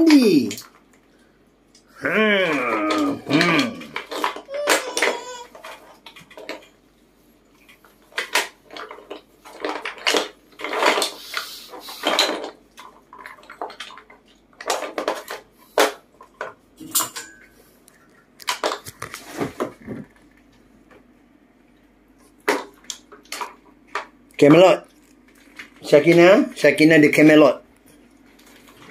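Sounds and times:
wooden blocks clattering: 2.4 - 6.7, 8.1 - 16.6.

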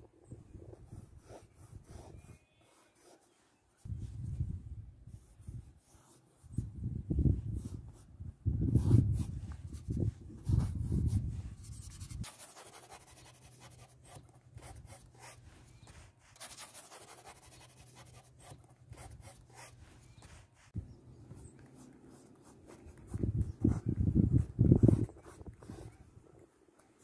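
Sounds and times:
paintbrush scratching and dabbing: 0.7 - 4.4, 7.3 - 27.0.

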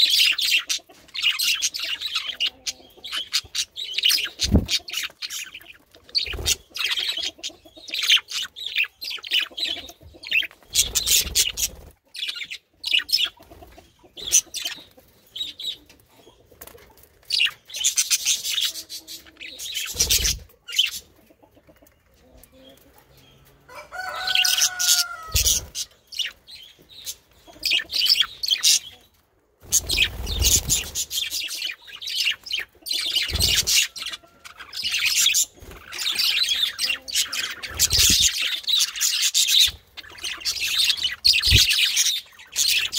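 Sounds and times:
budgerigars chattering: 0.0 - 15.8, 29.6 - 42.9
wing flapping: 29.6 - 31.1.

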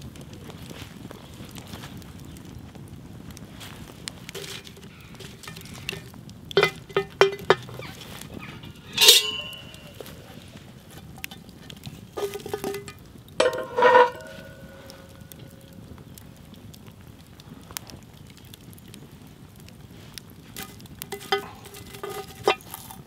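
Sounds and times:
campfire crackling: 0.0 - 23.0
metal clanking on metal: 4.3 - 15.7, 20.6 - 22.8.

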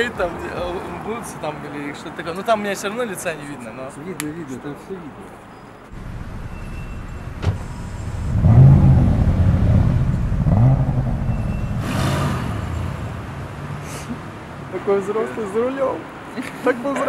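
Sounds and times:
car engine revving: 6.0 - 13.8
short rush of noise: 6.0 - 14.1.

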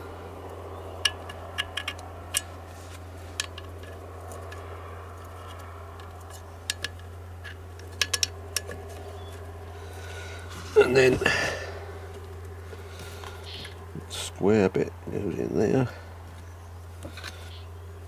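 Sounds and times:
steady low hum: 0.0 - 18.0
small parts clicking and tapping: 1.0 - 9.6.

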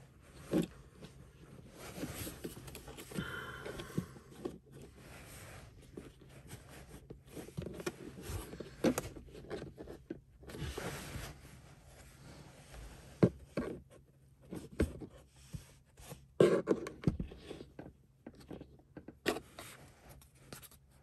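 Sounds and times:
plastic scraping and rubbing: 4.3 - 11.5.

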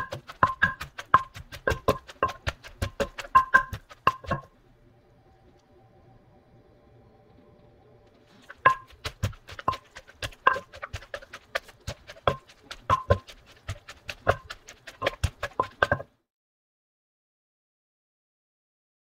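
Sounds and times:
wooden pestle pounding in mortar: 0.0 - 4.5, 8.5 - 16.1.

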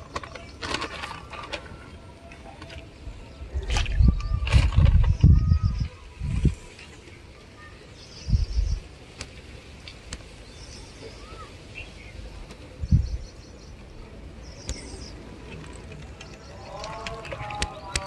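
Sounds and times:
wind buffeting microphone: 2.9 - 7.3, 8.1 - 9.1, 11.2 - 18.0
steady background hiss: 5.9 - 18.0.

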